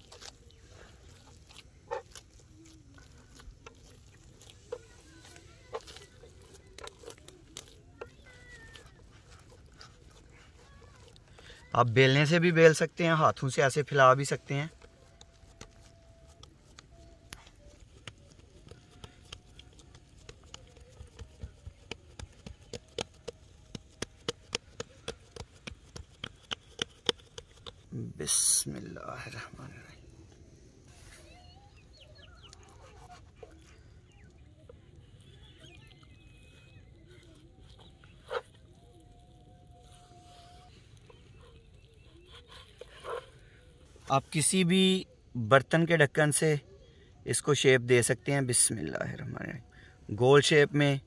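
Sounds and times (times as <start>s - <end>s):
hand kneading soft mixture: 0.0s - 46.4s
fingertips patting meat on board: 17.8s - 27.8s.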